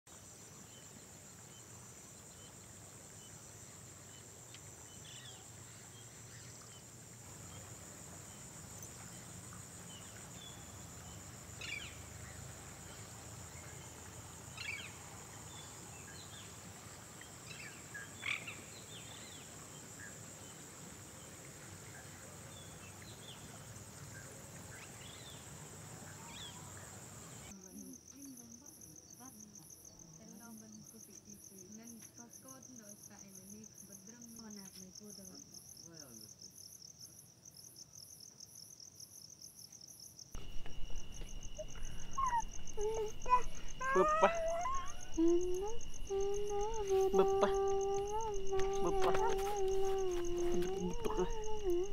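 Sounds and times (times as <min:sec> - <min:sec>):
pulsing cricket chirps: 0:00.2 - 0:51.9
high-pitched insect drone: 0:40.4 - 0:51.9
short bird calls: 0:40.4 - 0:51.9.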